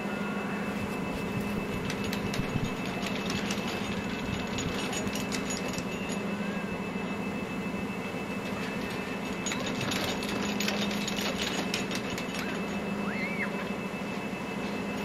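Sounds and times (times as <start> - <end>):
whistle-like tone: 0.0 - 3.4, 6.0 - 9.6, 12.2 - 15.0
low mechanical hum: 0.0 - 15.0.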